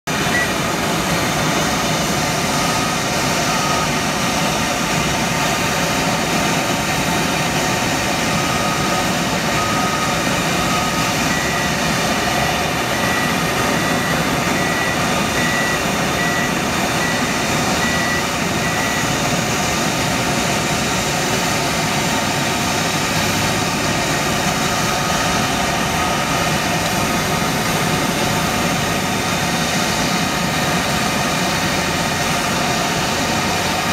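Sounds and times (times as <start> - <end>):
high warning beeps: 0.1 - 1.0, 2.3 - 5.5, 7.0 - 19.5, 23.5 - 28.7
lower beep: 0.1 - 1.1, 2.2 - 5.5, 7.6 - 20.0, 23.4 - 28.8
heavy engines droning: 0.1 - 33.9.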